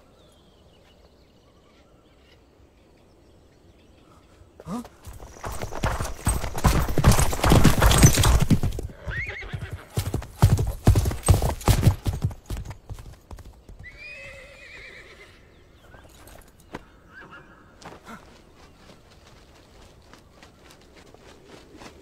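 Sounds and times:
horse hoofbeats galloping: 0:04.8 - 0:14.0, 0:17.8 - 0:22.0
horse whinnying: 0:05.1 - 0:10.1, 0:13.8 - 0:15.4.

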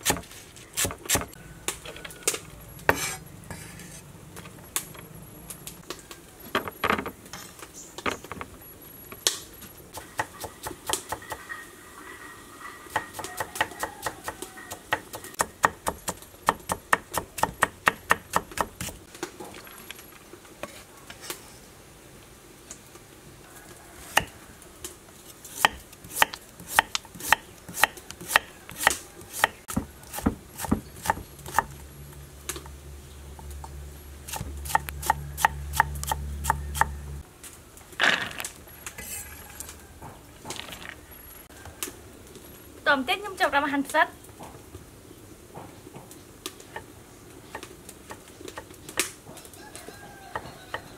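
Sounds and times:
knife chopping on wooden board: 0:25.6 - 0:31.7.

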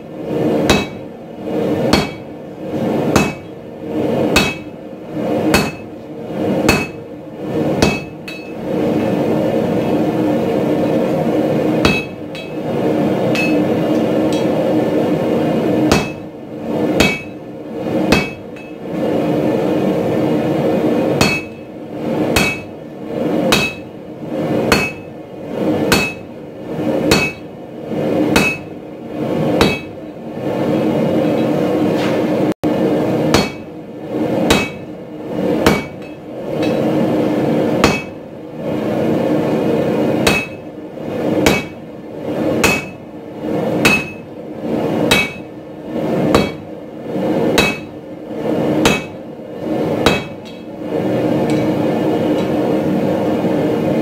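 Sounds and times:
hammer striking steel on anvil: 0:00.6 - 0:01.1, 0:01.9 - 0:02.3, 0:03.1 - 0:03.5, 0:04.4 - 0:04.8, 0:05.5 - 0:06.0, 0:06.6 - 0:07.0, 0:07.8 - 0:08.6, 0:11.8 - 0:12.6, 0:13.3 - 0:14.6, 0:15.9 - 0:16.3, 0:17.0 - 0:17.4, 0:18.1 - 0:18.8, 0:21.2 - 0:21.7, 0:22.4 - 0:22.8, 0:23.5 - 0:23.9, 0:24.7 - 0:25.1, 0:25.9 - 0:26.3, 0:27.1 - 0:27.5, 0:28.3 - 0:28.7, 0:29.6 - 0:30.0, 0:33.3 - 0:33.7, 0:34.5 - 0:34.9, 0:35.6 - 0:36.9, 0:37.8 - 0:38.2, 0:40.2 - 0:40.6, 0:41.4 - 0:41.8, 0:42.6 - 0:43.0, 0:43.8 - 0:44.3, 0:45.1 - 0:45.5, 0:46.3 - 0:46.6, 0:47.6 - 0:47.9, 0:48.8 - 0:49.2, 0:50.0 - 0:50.7, 0:51.5 - 0:52.6.

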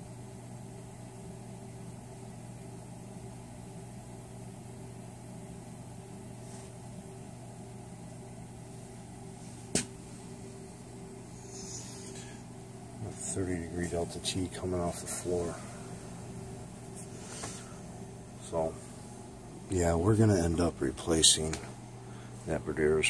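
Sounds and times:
boiler and pumps humming: 0:00.0 - 0:23.0.

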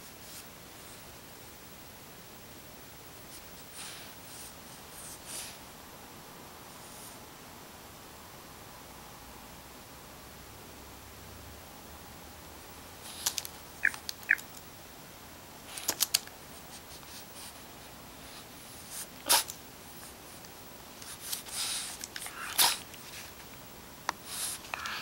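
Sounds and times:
puppy sniffing: 0:21.0 - 0:23.3.

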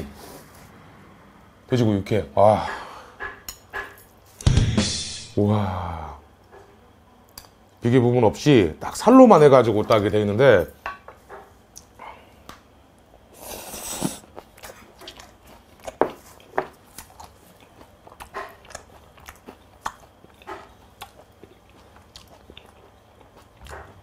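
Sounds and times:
mouth chewing wetly: 0:13.4 - 0:24.0.

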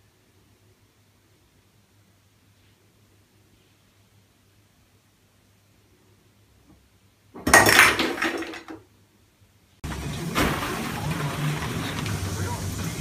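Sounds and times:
objects crashing into washbasin: 0:07.3 - 0:08.8, 0:09.8 - 0:13.0.

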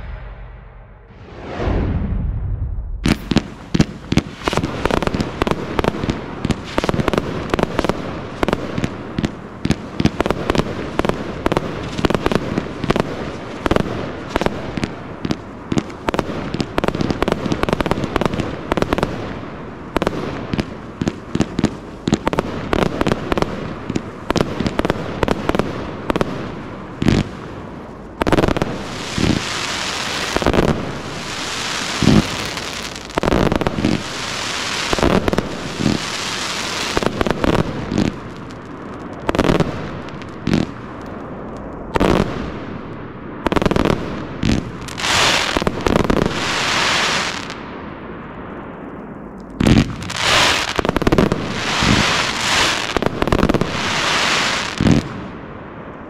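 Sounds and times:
fireworks bursting bangs: 0:00.0 - 0:47.7, 0:49.5 - 0:55.6
dense firework hiss: 0:28.2 - 0:38.6, 0:43.6 - 0:47.6, 0:49.7 - 0:55.2.

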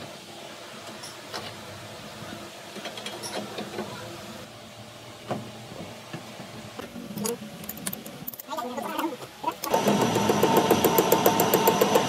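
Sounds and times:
lathe humming: 0:09.6 - 0:12.0.

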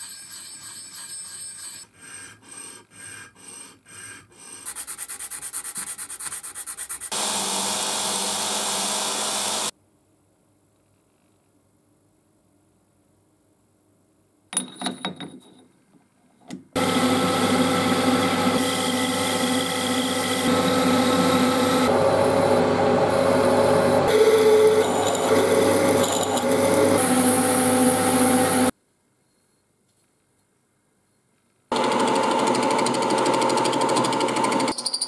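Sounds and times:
metal lathe whining: 0:16.8 - 0:28.7.

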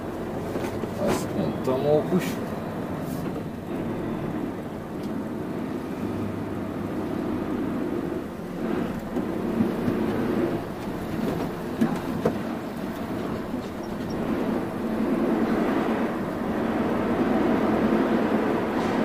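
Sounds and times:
diesel truck engine rumble: 0:00.0 - 0:19.0
knocks and rattles: 0:08.9 - 0:14.6.

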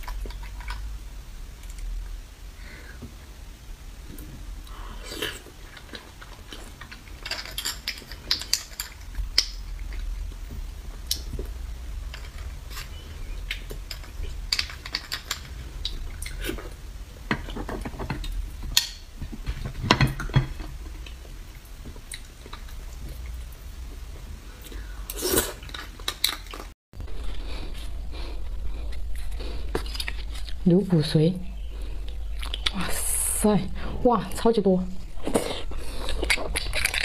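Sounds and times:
close eating sounds: 0:00.0 - 0:03.0, 0:03.6 - 0:18.6, 0:19.2 - 0:37.0.

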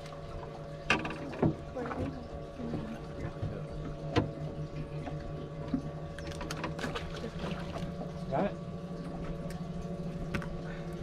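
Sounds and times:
steady low hum: 0:00.0 - 0:11.0
water lapping against boat hull: 0:00.0 - 0:11.0.

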